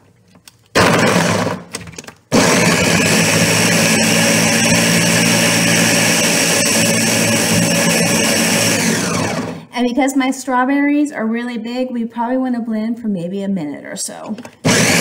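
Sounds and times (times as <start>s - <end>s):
blender chopping frozen fruit: 0.7s - 9.7s, 14.6s - 15.0s.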